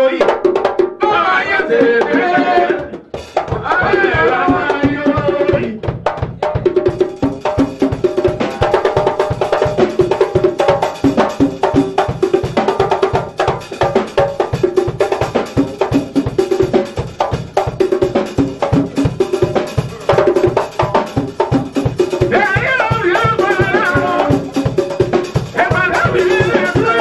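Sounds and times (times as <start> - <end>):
man singing into microphone: 0.0 - 0.3, 1.0 - 3.0, 3.6 - 5.9, 22.3 - 24.6, 25.4 - 27.0
drums beating: 0.0 - 27.0
live band playing: 0.5 - 27.0.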